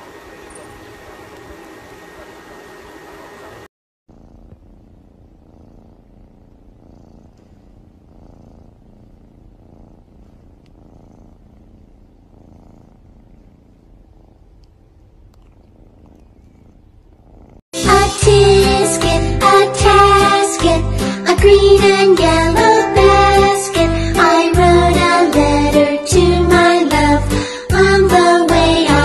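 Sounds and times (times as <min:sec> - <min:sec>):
cat purring: 0:04.1 - 0:27.2.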